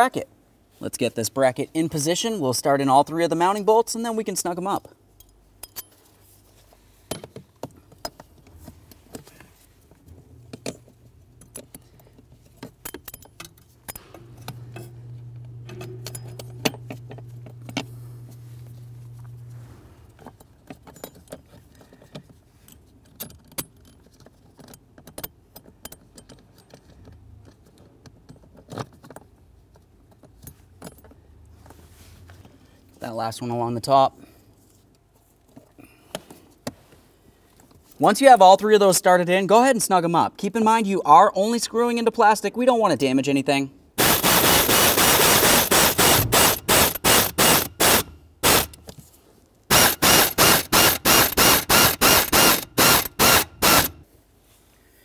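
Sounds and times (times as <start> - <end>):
metallic clinks of bolts: 5.1 - 6.0, 10.5 - 15.0, 20.6 - 21.6, 22.6 - 27.2
low steady hum: 8.1 - 21.2.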